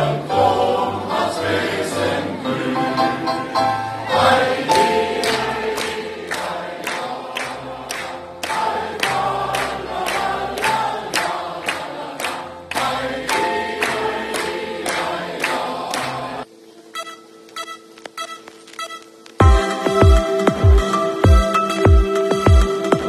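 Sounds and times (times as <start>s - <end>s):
choir singing: 0.0s - 16.5s
sharp steady beat: 19.4s - 22.6s.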